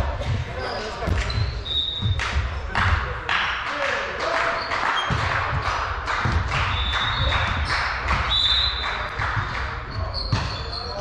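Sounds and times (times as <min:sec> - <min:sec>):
shoes squeaking on floor: 0:00.5 - 0:02.2, 0:06.6 - 0:11.0
ball and feet thuds: 0:05.1 - 0:08.4.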